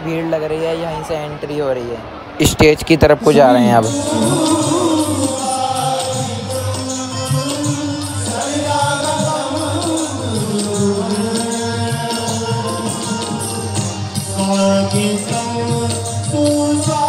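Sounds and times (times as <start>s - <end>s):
person singing long notes: 3.6s - 17.0s
instrumental music: 3.7s - 17.0s.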